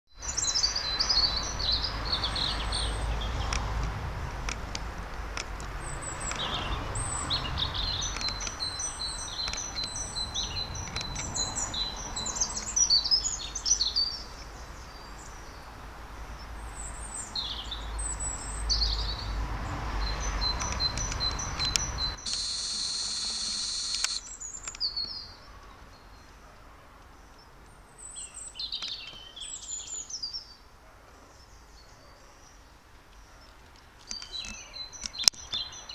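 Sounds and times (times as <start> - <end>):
songbirds chirping and singing: 0.2 - 3.8, 5.6 - 26.4, 27.0 - 30.7, 31.3 - 35.9
high-pitched burst: 22.2 - 24.2.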